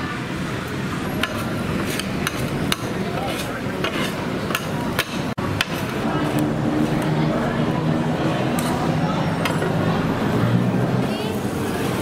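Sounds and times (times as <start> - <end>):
metal spatulas scraping on griddle: 1.2 - 6.0.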